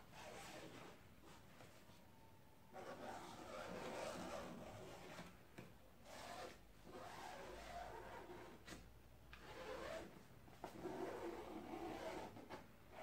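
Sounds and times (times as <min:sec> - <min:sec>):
marker pen scratching on foam: 0:02.8 - 0:05.3, 0:09.4 - 0:13.0.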